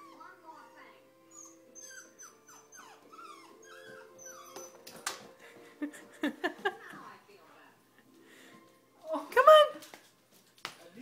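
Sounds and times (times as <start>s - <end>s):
puppy whimpering: 0.0s - 0.4s, 1.3s - 5.0s.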